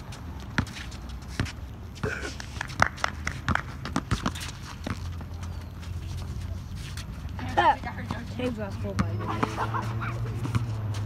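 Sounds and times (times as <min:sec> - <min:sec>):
basketball bouncing: 0:02.7 - 0:05.2, 0:08.0 - 0:09.6.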